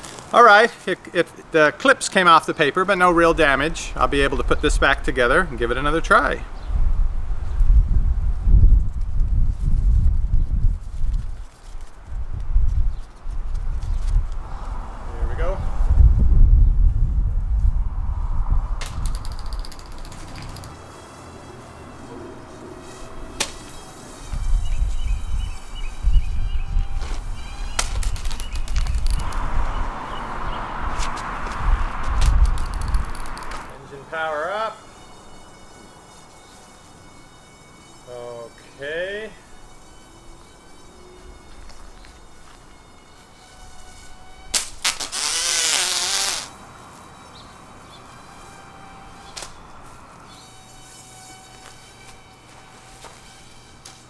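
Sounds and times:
wind buffeting microphone: 3.3s - 20.8s, 24.2s - 33.7s
sharp clicks: 18.8s - 20.8s, 27.8s - 29.5s, 32.1s - 33.7s
small propeller motor whine: 18.8s - 54.0s.

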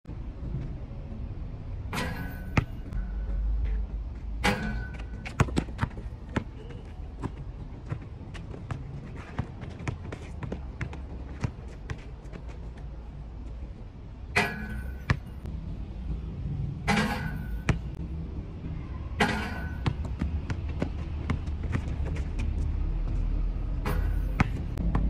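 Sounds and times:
basketball bouncing on hard court: 4.6s - 12.0s.

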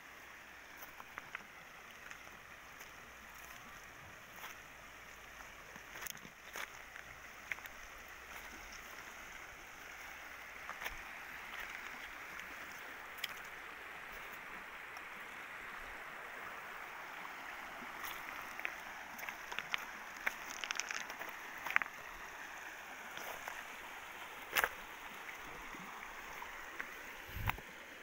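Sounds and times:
river rushing over stones: 0.0s - 28.0s
pebbles knocking underfoot: 18.0s - 22.1s.

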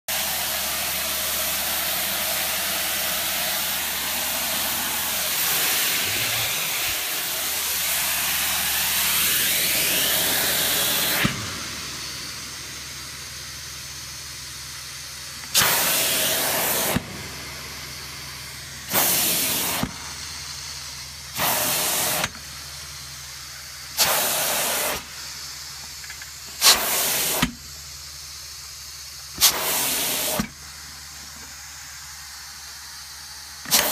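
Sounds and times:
extraction vacuum rushing: 0.1s - 14.2s, 15.2s - 20.6s
short rushes of air: 2.3s - 12.6s, 15.4s - 20.0s.

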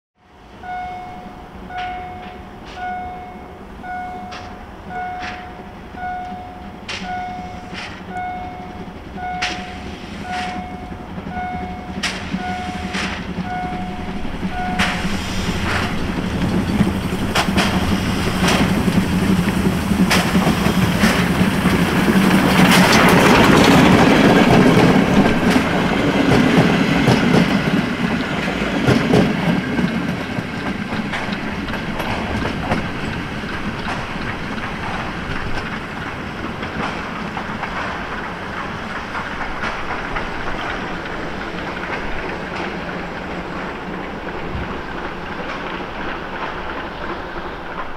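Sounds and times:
level crossing signal beeping: 0.6s - 16.0s
steam locomotive exhaust chuffing: 3.6s - 47.9s
train wheels clattering over rail joints: 4.1s - 47.9s.

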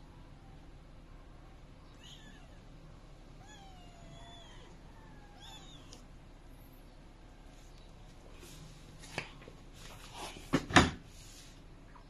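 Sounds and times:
kitten mewing: 3.4s - 6.0s.

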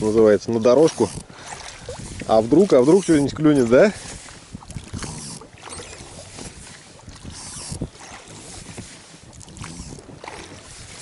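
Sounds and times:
oar swishes: 0.0s - 11.0s
oars splashing: 0.0s - 11.0s.

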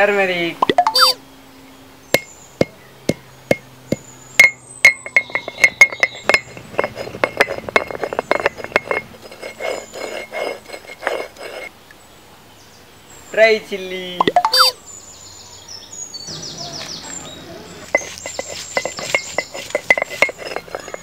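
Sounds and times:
stone pounder knocking on stone: 2.2s - 9.2s
crushing and rubbing strokes: 5.1s - 11.7s, 17.8s - 21.0s.

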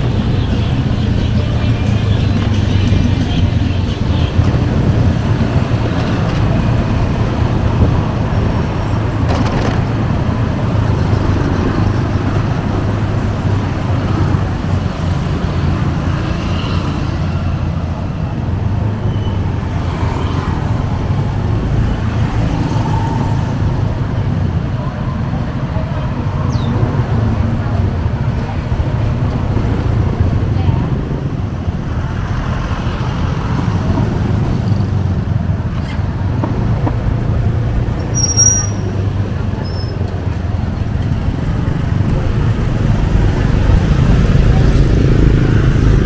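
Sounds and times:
road traffic rumble: 0.0s - 46.0s.

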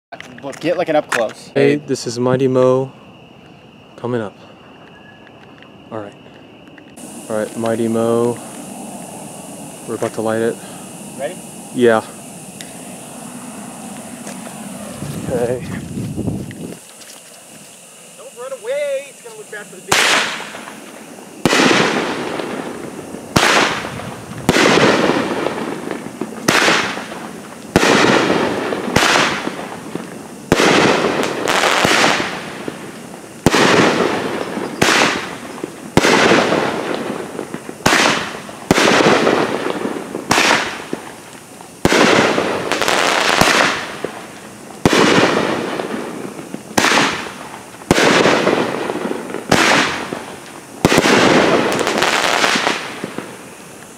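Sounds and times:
firework shots banging: 19.3s - 53.6s.

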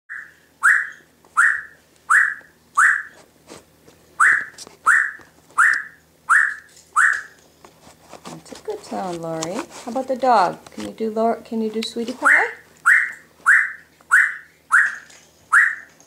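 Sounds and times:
parrot whistling short notes: 0.1s - 3.1s, 4.2s - 7.3s, 12.9s - 15.9s.

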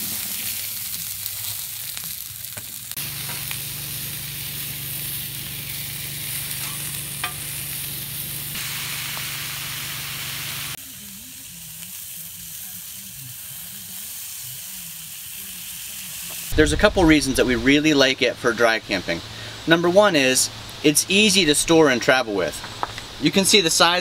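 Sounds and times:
food sizzling on a griddle: 0.0s - 16.6s.

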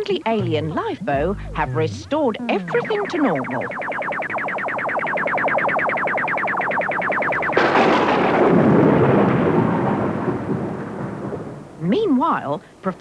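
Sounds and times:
electronic warbling pulse: 0.4s - 8.8s
thunderclap: 7.5s - 11.8s
rain: 8.4s - 12.8s.

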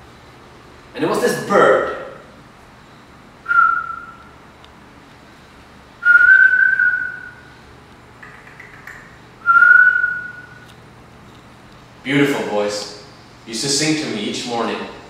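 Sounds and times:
man whistling bird-like notes: 3.4s - 4.4s, 6.0s - 7.5s, 9.4s - 10.7s.

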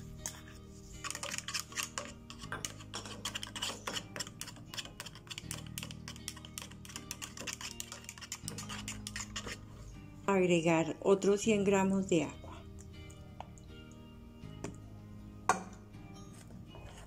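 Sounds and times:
spoon stirring in metal pot: 0.0s - 10.1s, 15.5s - 17.0s
background music with held notes: 0.0s - 17.0s.

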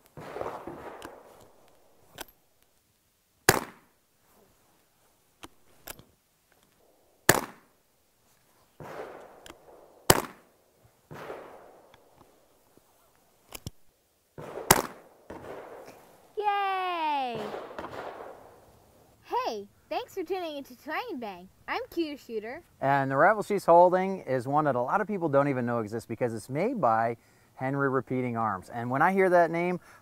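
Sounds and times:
rifle shots: 0.2s - 1.6s, 3.5s - 3.9s, 7.2s - 7.7s, 8.8s - 11.9s, 14.4s - 16.0s, 17.4s - 18.6s.

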